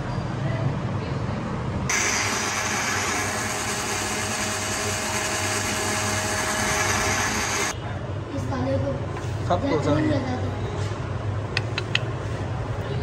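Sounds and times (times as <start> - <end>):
electric blender whirring: 1.9 - 7.8.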